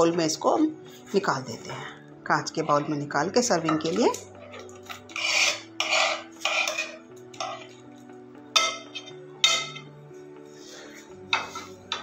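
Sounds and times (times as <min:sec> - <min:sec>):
soft background music: 0:00.0 - 0:12.0
spoon scraping curry from pan: 0:04.4 - 0:07.8
spoon clinking against pan: 0:04.7 - 0:07.8, 0:08.6 - 0:09.9.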